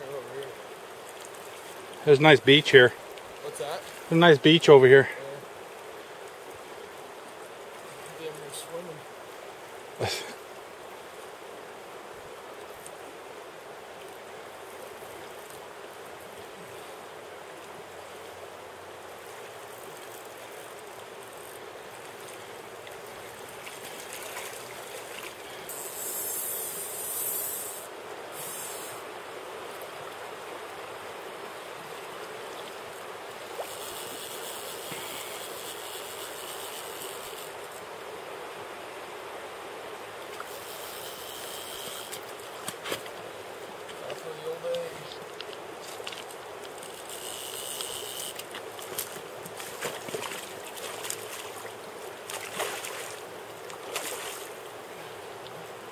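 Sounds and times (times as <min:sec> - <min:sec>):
river current rushing: 0:00.0 - 0:55.9
high hiss: 0:25.5 - 0:29.2.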